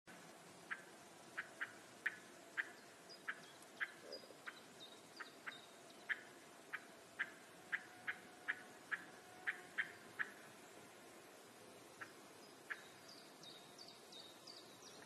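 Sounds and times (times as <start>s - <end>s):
bird sharp calls: 0.7s - 10.6s, 12.0s - 13.9s.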